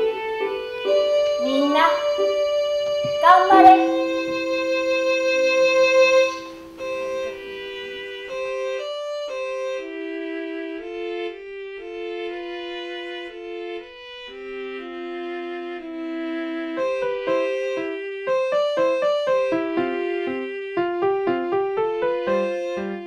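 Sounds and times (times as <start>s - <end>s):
slow instrumental music: 0.0s - 15.8s.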